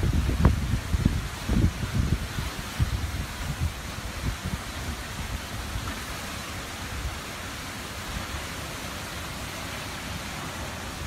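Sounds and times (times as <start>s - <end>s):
wind buffeting microphone: 0.0s - 8.6s
heavy driving rain: 0.0s - 11.0s.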